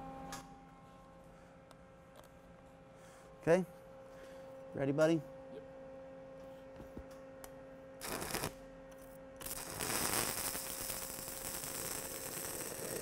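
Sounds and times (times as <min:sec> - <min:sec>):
arc striking sputter: 0:08.0 - 0:08.6, 0:09.4 - 0:13.0
welding arc crackling: 0:08.0 - 0:08.6, 0:09.4 - 0:13.0.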